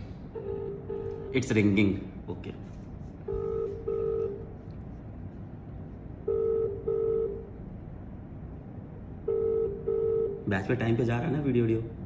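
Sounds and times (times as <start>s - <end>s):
phone ringback tone: 3.3s - 4.4s, 6.3s - 7.4s, 9.3s - 10.4s.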